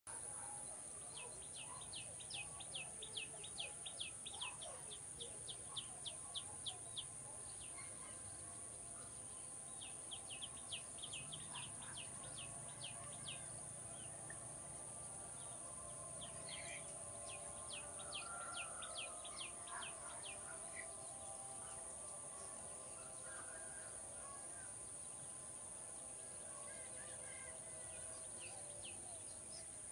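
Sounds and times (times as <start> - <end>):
bird chirping: 0.1 - 29.9
other birds calling: 10.1 - 14.4, 15.4 - 21.9.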